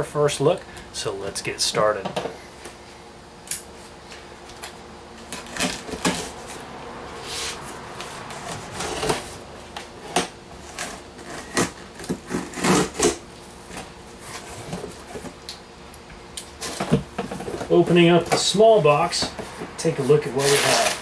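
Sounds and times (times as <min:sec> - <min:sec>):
cardboard flaps scraping and rustling: 0:07.3 - 0:15.4, 0:16.6 - 0:21.0
packing tape ripping off box: 0:10.1 - 0:13.2, 0:20.2 - 0:21.0.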